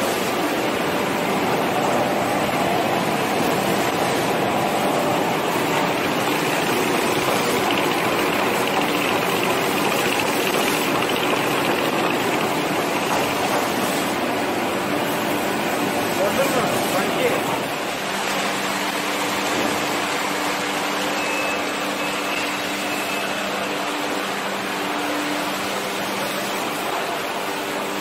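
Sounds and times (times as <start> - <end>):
production line machine din: 0.0 - 19.1.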